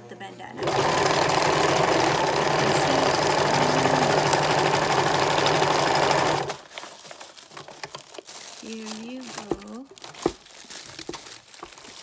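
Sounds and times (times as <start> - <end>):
sewing machine running: 0.6 - 6.7
material rustling: 0.6 - 12.0.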